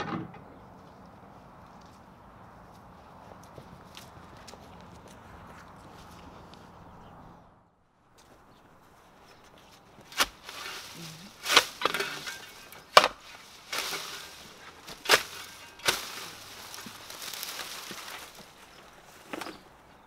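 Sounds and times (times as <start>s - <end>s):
dry stems and dirt rustling: 8.0s - 20.0s
spade chopping into soil: 10.0s - 17.6s.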